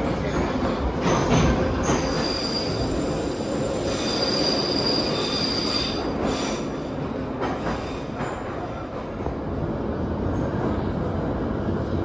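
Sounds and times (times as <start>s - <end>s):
train rumbling on rails: 0.0s - 12.0s
train wheels squealing: 1.8s - 6.9s.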